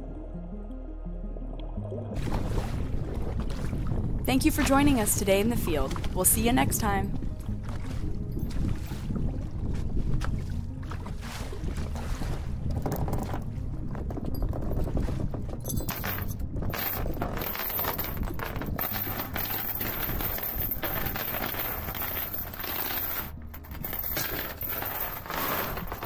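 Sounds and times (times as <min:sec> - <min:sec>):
metal anchor chain rattling: 0:12.7 - 0:26.0.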